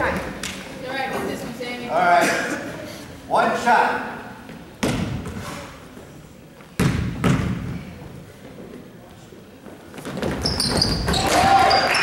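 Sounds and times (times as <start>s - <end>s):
basketball bouncing on wooden floor: 6.8s - 7.8s.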